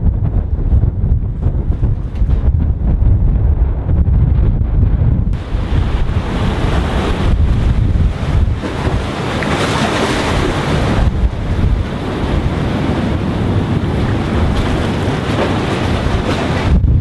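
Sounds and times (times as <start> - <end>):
wind buffeting microphone: 0.0 - 17.0
sea waves washing against concrete: 5.3 - 17.0.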